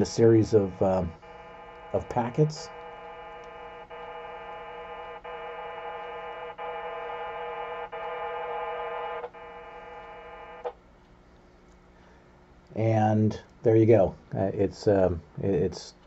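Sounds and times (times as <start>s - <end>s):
modem tone chord: 0.0s - 10.7s.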